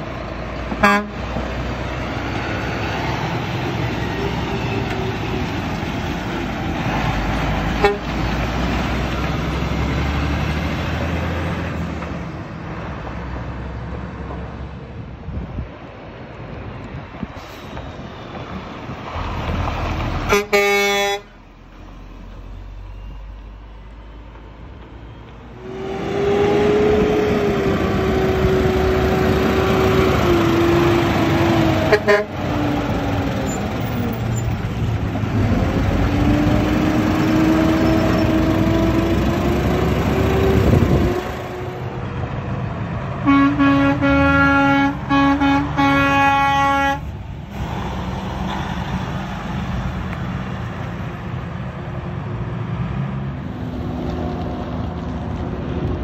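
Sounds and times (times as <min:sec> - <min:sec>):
truck air horn blasts: 0:00.8 - 0:01.3, 0:07.8 - 0:08.2, 0:20.3 - 0:21.4, 0:31.9 - 0:32.4, 0:43.2 - 0:47.1.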